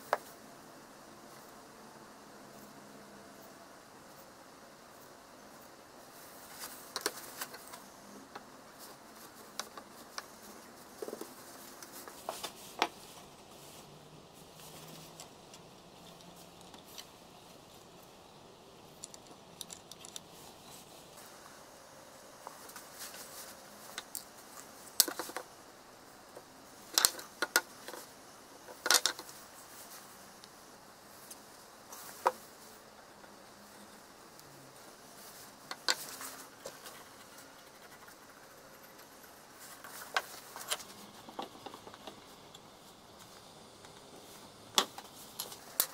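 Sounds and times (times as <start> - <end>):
wooden parts clicking and knocking: 19.0 - 20.3, 28.7 - 29.3.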